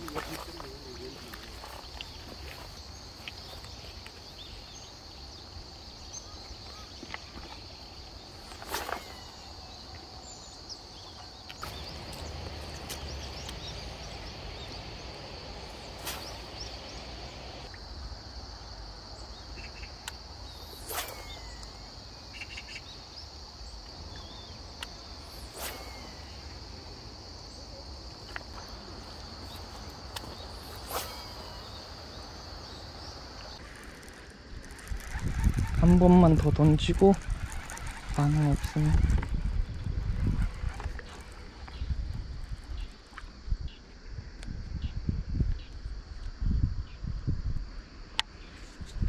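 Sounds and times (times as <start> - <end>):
high-pitched insect chorus: 0.0 - 49.0
sharp clicks: 33.5 - 39.4.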